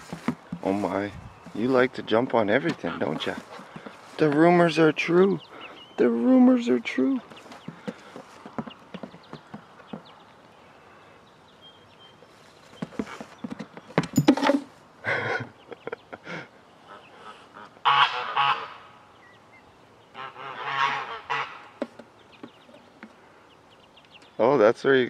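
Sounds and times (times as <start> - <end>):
poultry calling: 2.6 - 10.1, 16.8 - 19.4, 20.1 - 21.8.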